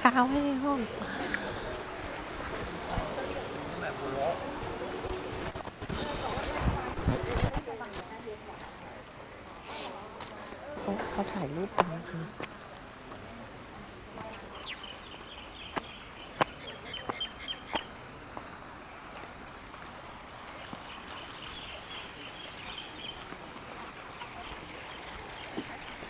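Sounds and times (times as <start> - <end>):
small birds chirping: 14.3 - 18.0, 20.6 - 23.4, 24.2 - 26.0.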